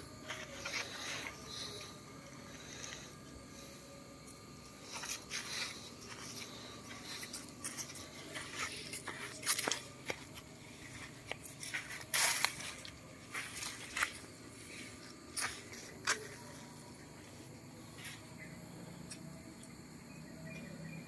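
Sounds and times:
footsteps crunching on dry leaves: 4.8 - 16.6.

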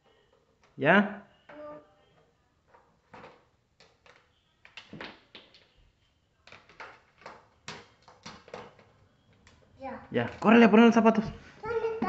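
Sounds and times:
plastic blocks clacking: 2.7 - 5.8, 6.4 - 9.0.

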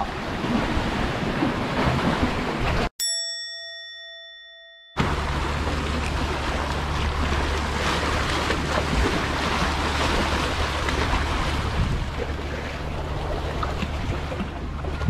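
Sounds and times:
waves splashing against concrete blocks: 0.0 - 2.9, 5.0 - 15.0
wind on microphone: 5.0 - 15.0.

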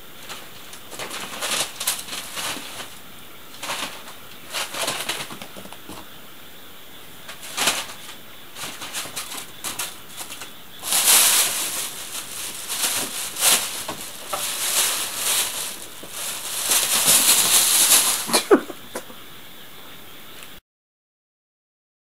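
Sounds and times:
plastic bag rustling: 0.0 - 6.1, 7.3 - 18.8.

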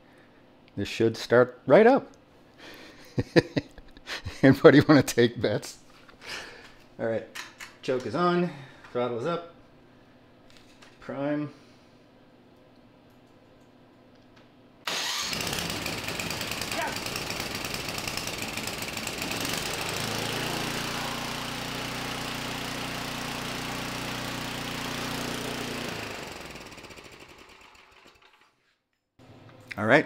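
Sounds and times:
electric starter cranking: 14.9 - 28.5
snowblower engine running: 14.9 - 28.5.

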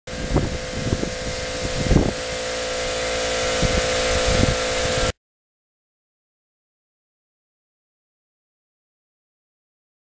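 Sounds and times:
steady mechanical hum: 0.1 - 5.2.

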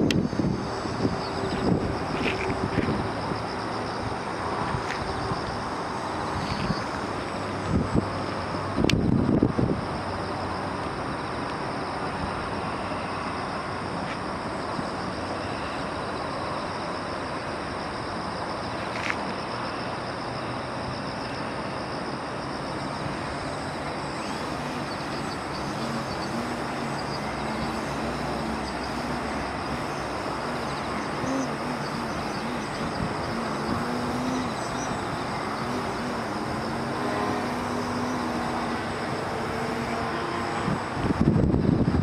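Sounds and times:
background hiss: 10.0 - 41.2
model plane motor buzzing: 24.2 - 40.7.

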